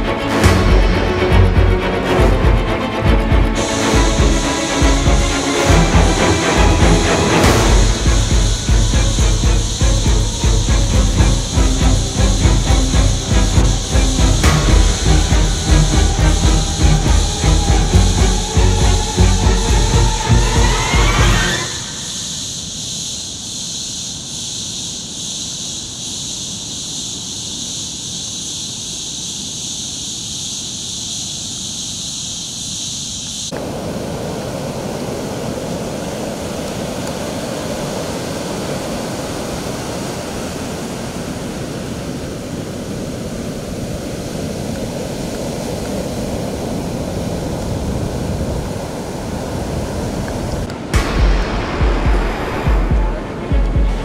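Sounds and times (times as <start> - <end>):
ocean waves breaking: 0.0 - 22.4, 33.5 - 54.0
night insects trilling: 0.0 - 54.0.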